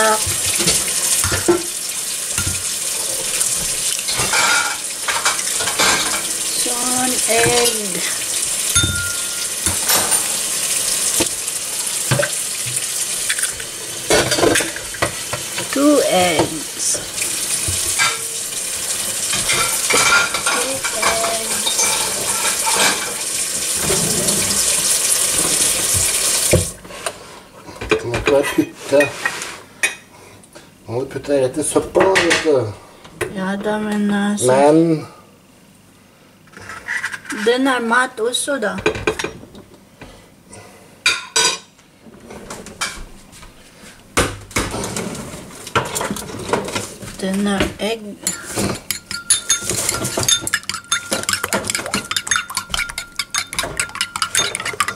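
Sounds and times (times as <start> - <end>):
dishes and utensils clinking: 0.0 - 1.8, 3.5 - 10.5, 12.1 - 18.4, 19.3 - 24.7, 41.1 - 41.7, 44.5 - 54.9
cutlery and dishes clinking: 3.6 - 6.3, 8.7 - 10.4, 19.3 - 23.2, 48.2 - 54.9.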